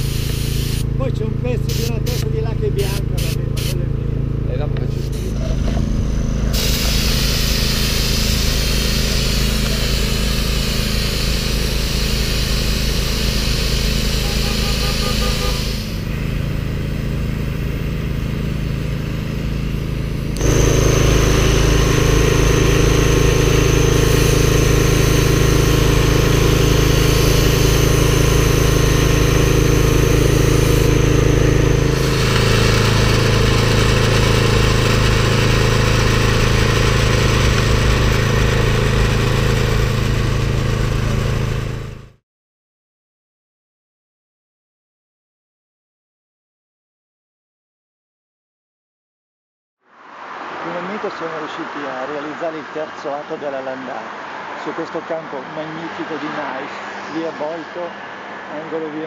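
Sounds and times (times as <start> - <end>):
motor humming: 0.0 - 42.2.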